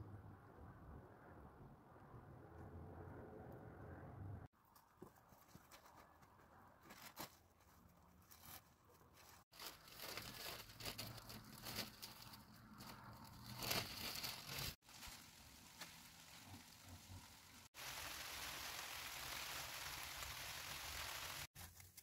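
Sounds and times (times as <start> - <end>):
plastic sheeting crinkling: 6.8 - 22.0.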